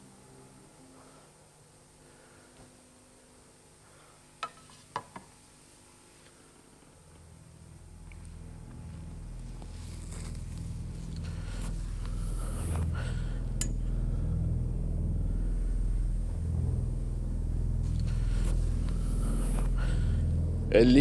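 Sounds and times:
deep low rumbling drone: 6.9s - 21.0s.

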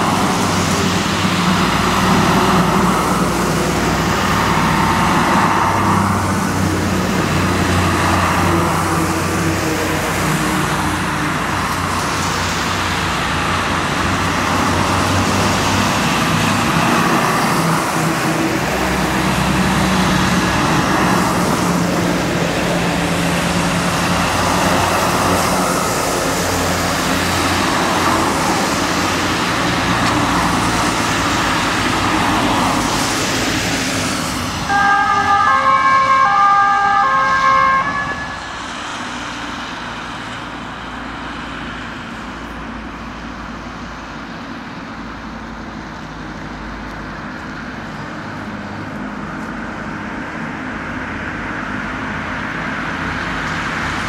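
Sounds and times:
fire engines running: 0.0s - 54.0s
tyres hissing on wet road: 0.0s - 54.0s
two-tone siren: 34.7s - 38.6s.

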